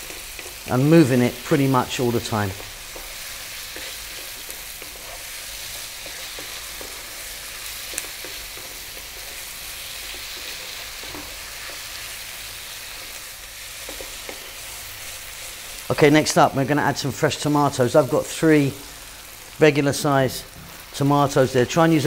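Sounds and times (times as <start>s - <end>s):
wooden spoon scraping a pan: 0.0s - 15.9s
meat sizzling in a frying pan: 0.0s - 22.0s.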